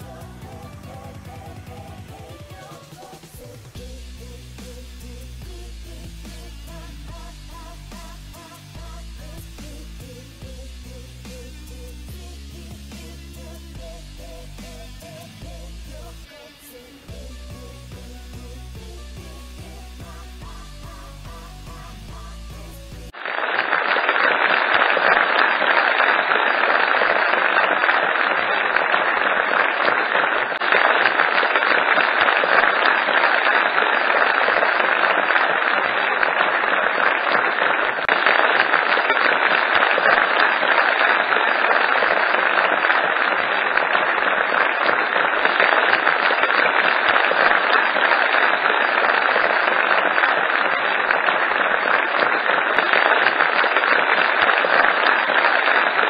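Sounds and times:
audience applauding: 19.3 - 56.0.

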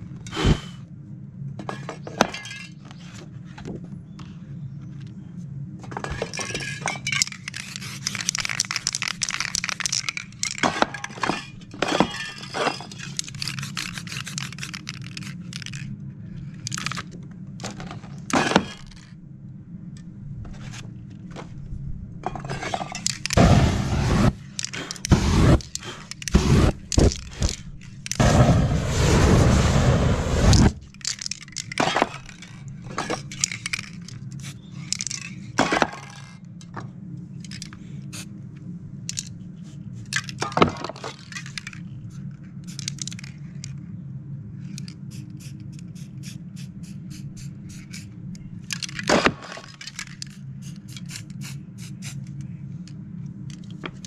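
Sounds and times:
steady low hum: 0.0 - 54.0
spray paint cans hissing: 6.0 - 15.9, 23.0 - 35.6, 42.6 - 43.3, 44.7 - 52.5
rushing noise with deep rumble: 23.2 - 30.9.

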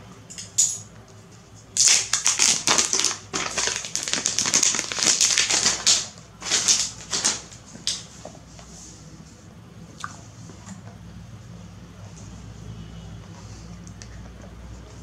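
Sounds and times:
plastic shrink-wrap crinkling: 1.7 - 8.1.

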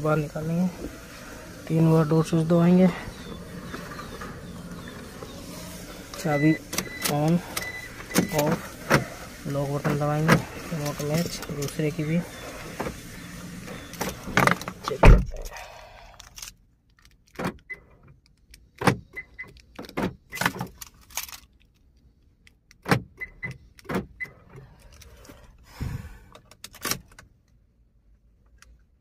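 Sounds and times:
clicks and clunks of ignition: 1.6 - 15.6, 16.3 - 21.5, 22.4 - 25.5, 26.3 - 27.6
car keys jangling: 16.1 - 25.5.

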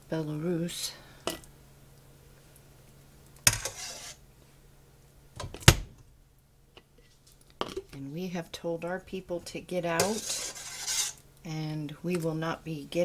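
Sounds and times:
faint steady hum: 0.0 - 13.0
spoon scraping pot: 3.5 - 4.2, 9.9 - 11.2.

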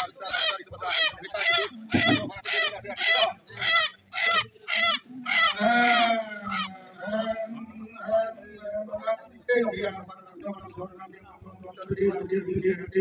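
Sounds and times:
rooster squawking: 0.0 - 6.8.

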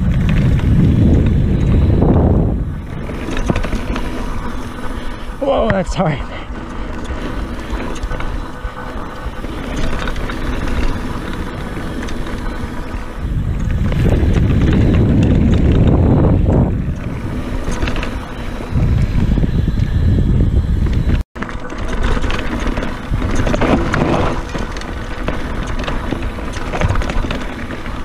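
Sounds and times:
bike tyres on dirt: 0.0 - 28.0
wind rushing over microphone: 0.0 - 28.0.

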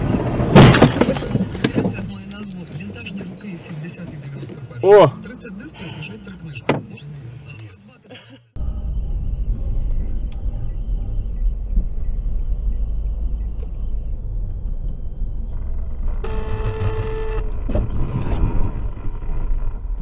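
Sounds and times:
car driving on snowy road: 0.0 - 7.9, 8.6 - 20.0
car horn: 16.2 - 17.6.

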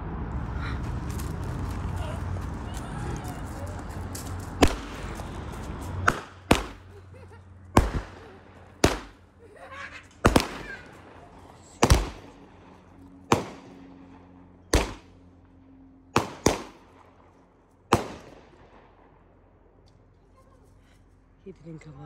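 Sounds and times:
fireworks bangs: 1.6 - 12.5, 13.2 - 13.9, 14.7 - 15.1, 16.2 - 17.0, 17.9 - 19.0.

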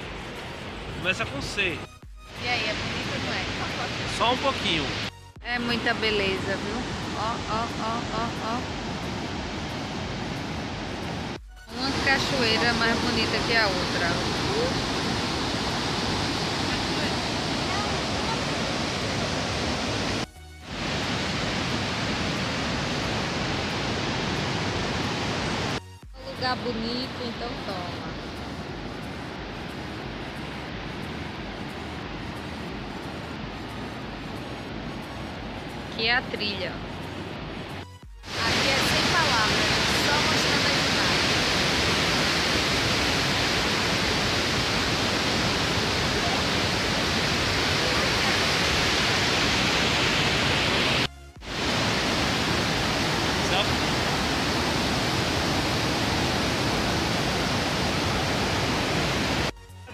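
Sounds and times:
waterfall roaring: 2.4 - 25.8, 38.3 - 59.5.

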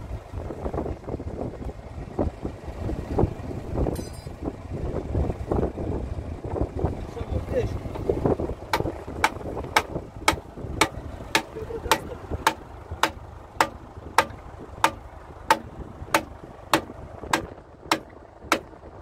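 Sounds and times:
low background rumble: 0.0 - 19.0
hammering blows: 8.7 - 18.8.

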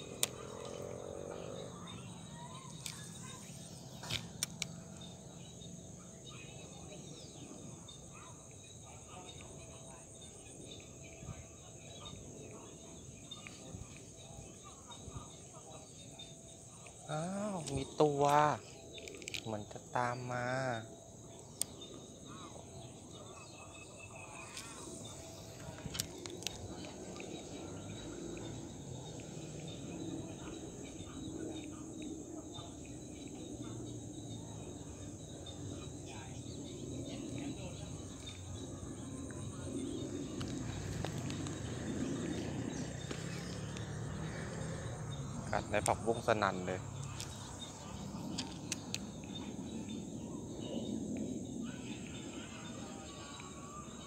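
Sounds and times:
insects chirring: 0.0 - 54.0
sharp clicks: 2.7 - 4.8.

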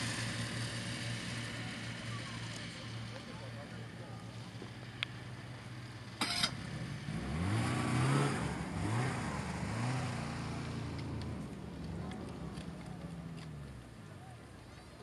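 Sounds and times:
snowmobile engine revving: 6.2 - 11.0.

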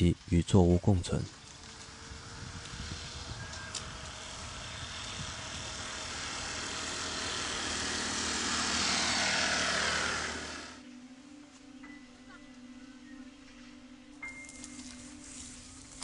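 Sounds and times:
passing engine rush: 1.3 - 10.9.

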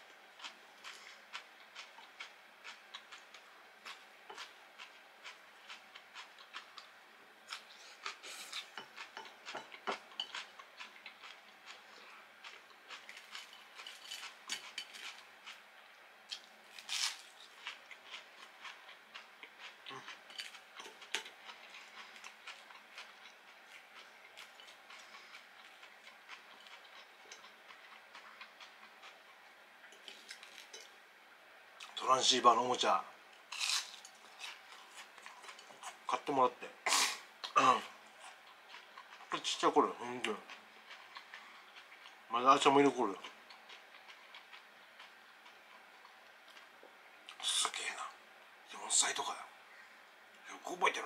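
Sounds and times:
chewing with wet mouth clicks: 0.4 - 6.9, 7.5 - 15.6, 17.3 - 30.9, 38.2 - 42.3, 43.2 - 46.7.

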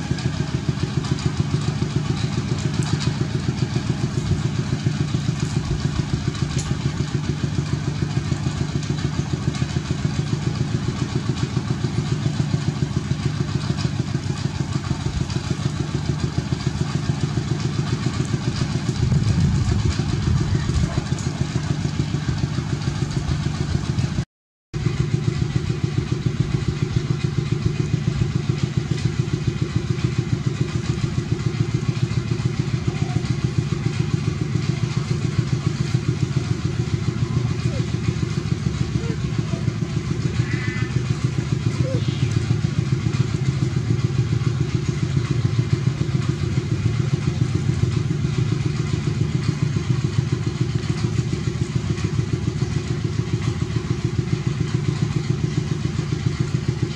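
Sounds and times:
engine idling: 0.0 - 24.2, 24.8 - 56.9.

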